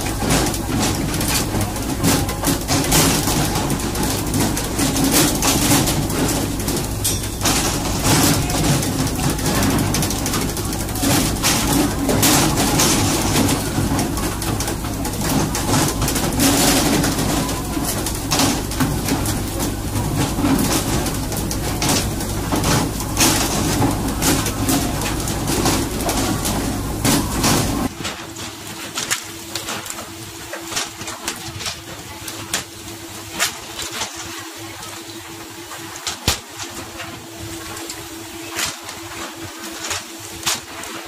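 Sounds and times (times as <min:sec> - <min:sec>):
boat engine droning: 0:00.0 - 0:27.9.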